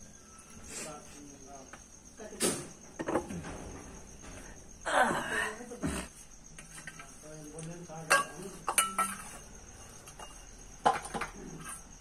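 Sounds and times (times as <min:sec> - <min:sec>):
crickets chirping: 0:00.0 - 0:12.0
metal dishes and spoon clinking: 0:08.0 - 0:11.9.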